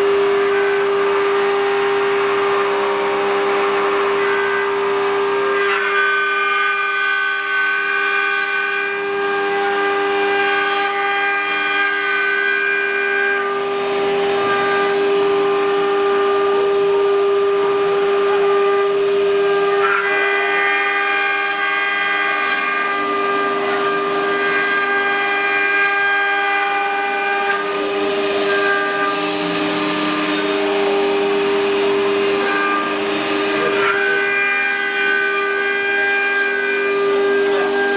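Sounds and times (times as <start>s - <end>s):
router spindles whining: 0.0s - 37.9s
wood cutting hiss: 21.0s - 37.9s.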